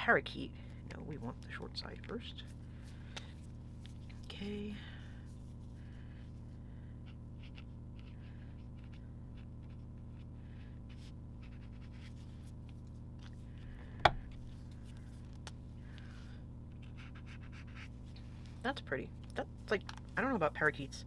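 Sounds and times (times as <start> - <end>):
steady low hum: 0.0 - 21.0
felt marker scratching on paper: 7.0 - 10.3, 10.9 - 12.6, 16.7 - 18.0.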